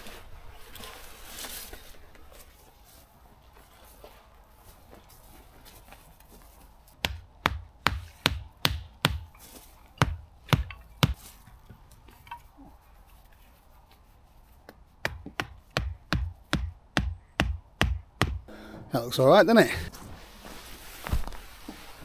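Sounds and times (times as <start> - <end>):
hammer blows on tent pegs: 7.0 - 11.2, 15.0 - 18.6.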